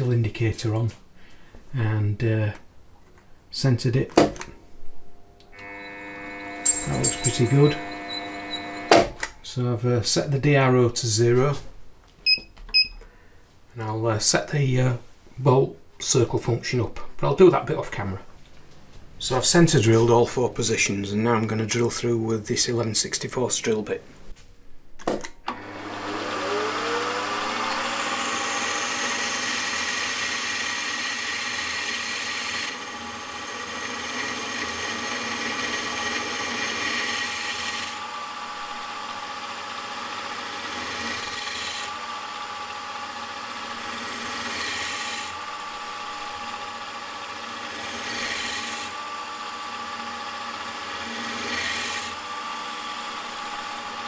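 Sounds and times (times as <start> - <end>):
milling machine motor whine: 5.2 - 9.3, 25.5 - 54.0
drill cutting metal: 5.5 - 9.3, 25.5 - 54.0
high drill squeal: 5.6 - 9.0, 39.0 - 50.2.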